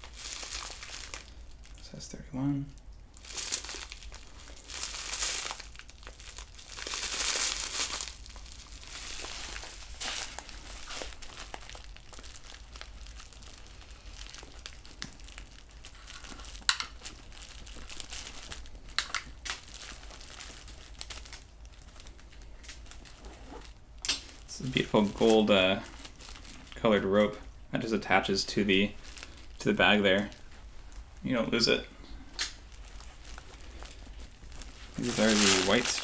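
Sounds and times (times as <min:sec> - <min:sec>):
packaging rustling and crinkling: 0:00.0 - 0:02.0, 0:03.1 - 0:36.0
items clicking and knocking: 0:16.6 - 0:17.0.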